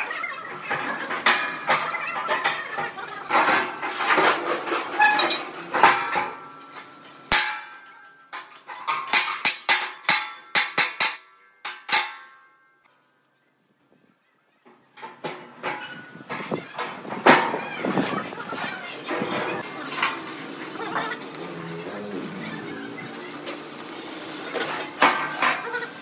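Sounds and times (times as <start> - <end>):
hammer strikes on steel: 7.3 - 12.6.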